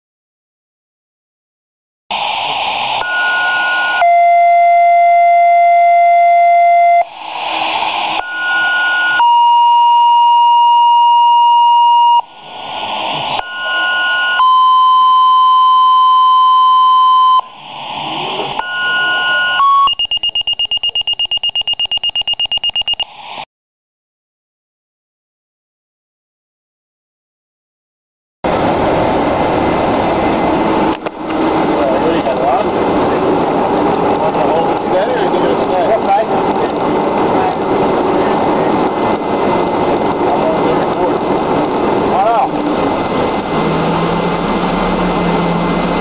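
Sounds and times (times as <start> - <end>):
radio static bursts: 2.1 - 23.5
rapid high beeping: 13.4 - 17.5, 18.6 - 23.1
two-tone paging alert: 18.6 - 23.0.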